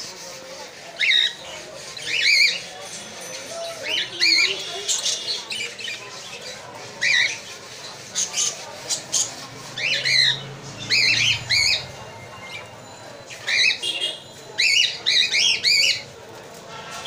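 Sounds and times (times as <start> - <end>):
budgerigar chicks squawking: 3.4 - 16.1.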